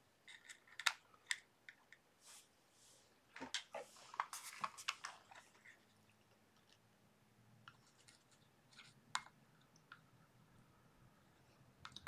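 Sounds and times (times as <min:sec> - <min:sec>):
hands handling small parts: 0:00.2 - 0:02.0.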